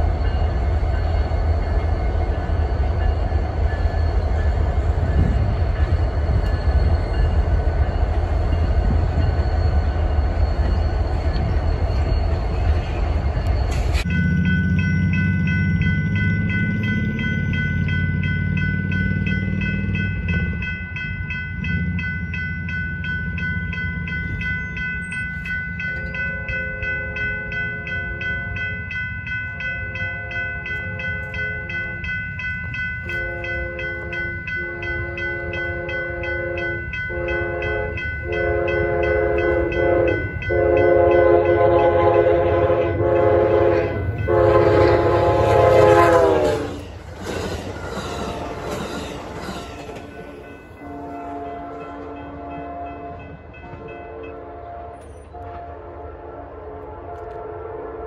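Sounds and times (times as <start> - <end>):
crossing bell ringing: 0.0 - 55.6
train rumbling: 0.0 - 58.0
locomotive air horn blasts: 33.1 - 46.8, 50.8 - 58.0.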